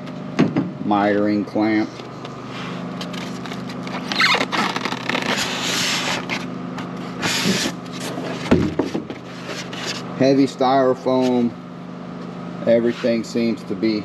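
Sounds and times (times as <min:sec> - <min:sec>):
steady low hum: 0:00.0 - 0:14.0
styrofoam scraping cardboard: 0:02.6 - 0:08.5.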